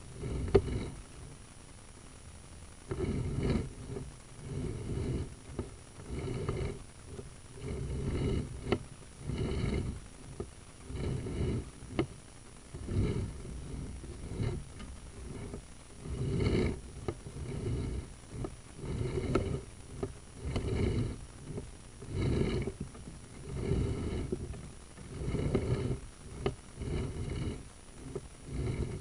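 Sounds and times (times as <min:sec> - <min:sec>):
cable rumbling and scraping in pipe: 0:00.0 - 0:01.5, 0:02.7 - 0:29.0.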